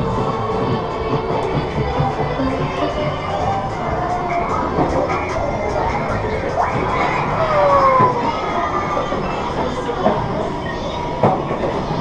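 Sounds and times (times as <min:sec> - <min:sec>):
crowd hubbub: 0:00.0 - 0:12.0.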